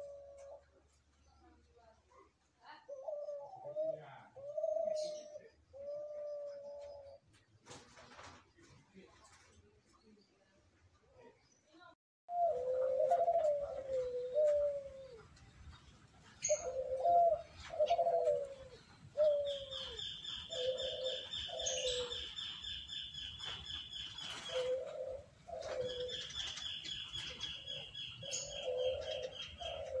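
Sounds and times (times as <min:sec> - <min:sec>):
dove cooing: 0:00.0 - 0:00.8, 0:02.8 - 0:07.2, 0:12.3 - 0:30.0.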